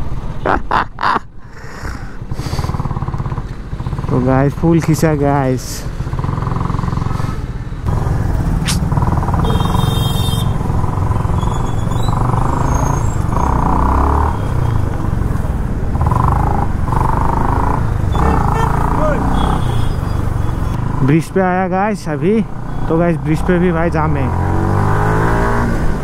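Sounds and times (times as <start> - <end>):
motorcycle engine running: 2.3 - 5.2, 5.9 - 21.5.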